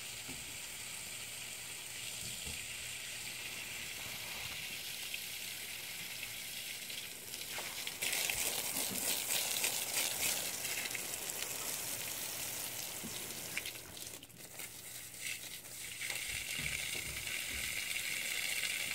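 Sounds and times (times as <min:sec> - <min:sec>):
hose water splashing on soil: 0:06.6 - 0:18.9.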